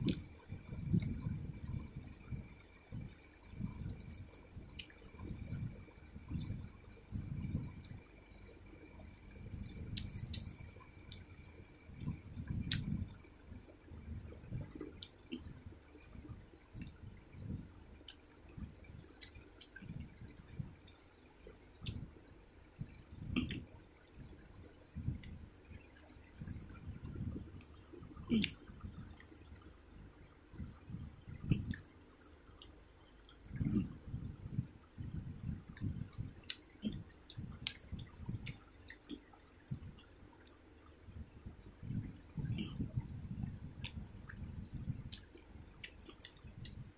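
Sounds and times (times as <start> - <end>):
wet chewing and squishing: 9.1 - 11.4, 12.0 - 13.8, 25.0 - 29.4, 32.6 - 40.6, 43.4 - 46.9
wet squishing of food eaten by hand: 27.6 - 29.4.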